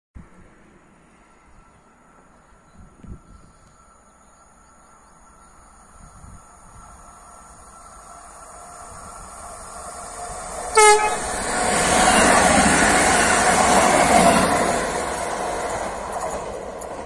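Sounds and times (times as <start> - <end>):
train wheels rushing on rail: 1.7 - 17.0
train horn toot: 10.7 - 11.4.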